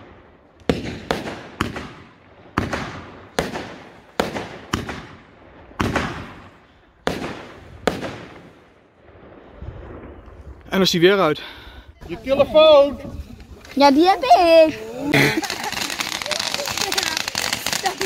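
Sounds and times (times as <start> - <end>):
fireworks bangs: 0.0 - 11.0, 12.0 - 18.0.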